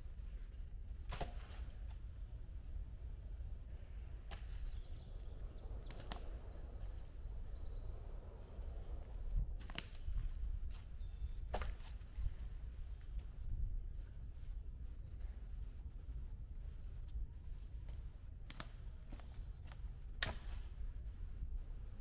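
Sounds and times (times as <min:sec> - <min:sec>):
branches knocking and snapping: 0:01.0 - 0:02.0, 0:04.2 - 0:05.1, 0:05.8 - 0:06.6, 0:09.3 - 0:13.2, 0:17.9 - 0:20.8.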